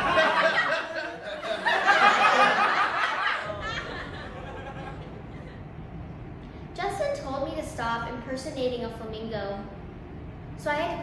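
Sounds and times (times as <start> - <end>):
people laughing: 0.0 - 5.7.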